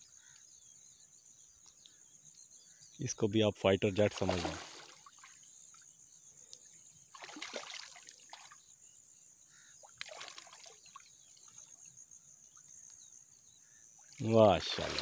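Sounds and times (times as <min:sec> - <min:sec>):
water splashing and dripping: 0:04.1 - 0:05.5, 0:07.1 - 0:08.6, 0:09.8 - 0:11.7, 0:14.0 - 0:15.0.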